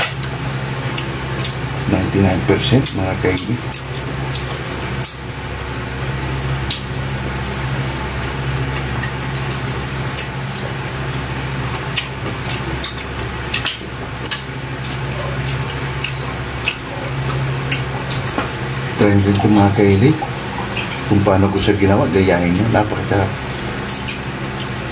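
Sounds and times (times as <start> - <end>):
wet chewing and lip-smacking: 0.0 - 1.6, 3.6 - 5.3, 6.0 - 19.4, 23.5 - 24.8
steady low hum: 0.0 - 24.9.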